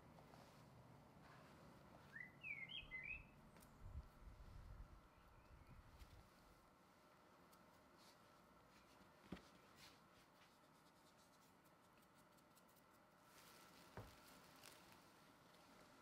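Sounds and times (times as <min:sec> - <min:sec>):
soft rustling of dough: 0:00.0 - 0:02.2, 0:05.7 - 0:16.0.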